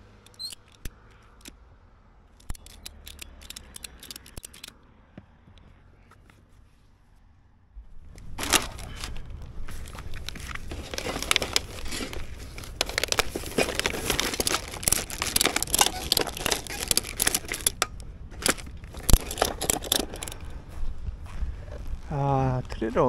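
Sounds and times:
plastic bag crinkling: 8.4s - 20.4s.

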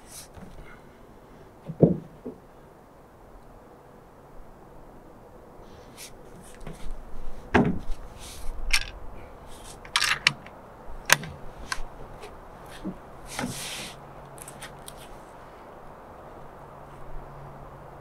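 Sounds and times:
binoculars thumping on board: 7.5s - 7.9s
clicks knocks and rustling: 8.7s - 9.0s, 9.7s - 13.6s.

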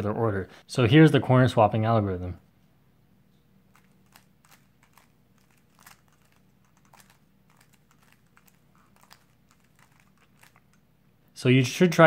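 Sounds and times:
low steady hum: 0.0s - 12.0s
plastic puzzle cube clicks: 3.8s - 10.8s.

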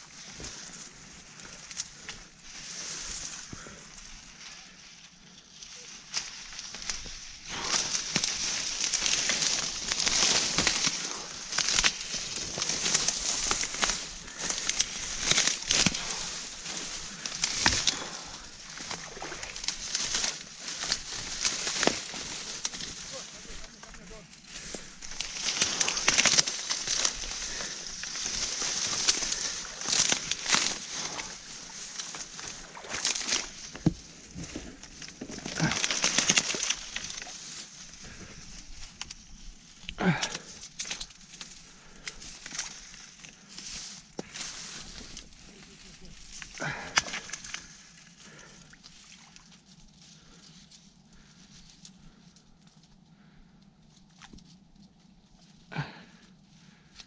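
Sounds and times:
dry reeds rustling and crackling: 0.0s - 57.0s
reed stems snapping: 0.1s - 4.7s, 5.3s - 49.6s.

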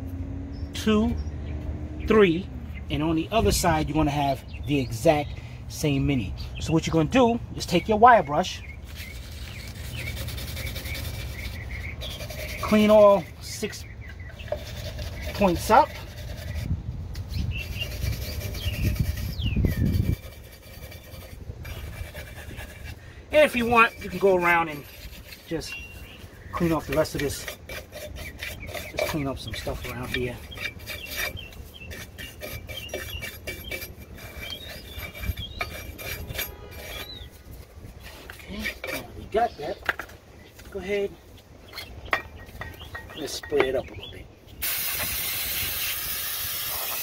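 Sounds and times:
bird chirping: 0.3s - 46.1s
wire brush scraping metal: 8.8s - 40.8s, 44.6s - 47.0s.

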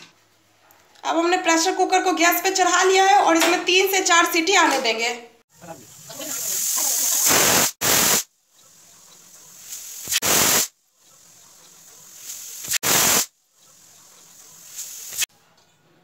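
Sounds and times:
steam hissing: 5.5s - 15.3s.

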